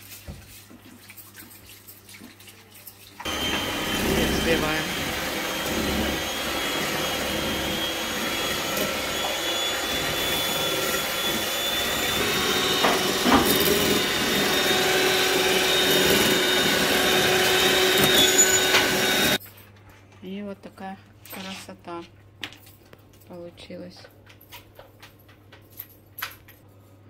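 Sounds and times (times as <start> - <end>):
electric hand mixer whine: 3.2 - 19.4.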